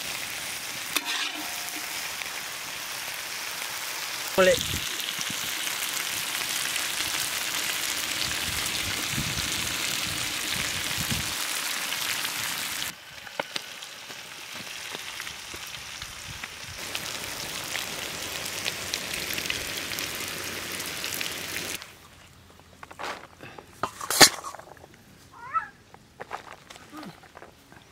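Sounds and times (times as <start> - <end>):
curry sizzling in iron pan: 0.0 - 21.8.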